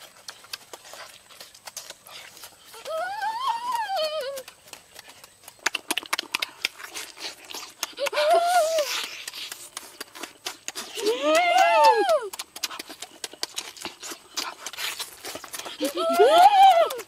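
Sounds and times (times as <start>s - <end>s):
wet lip-smacking and chewing: 0.0s - 17.0s
slurping bite: 5.7s - 11.2s.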